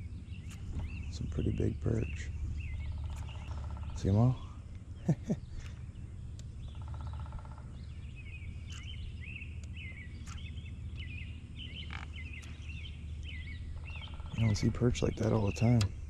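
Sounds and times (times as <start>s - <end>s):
low background rumble: 0.0s - 16.0s
songbird chirping: 0.0s - 16.0s
buzzing rattle: 2.3s - 14.8s.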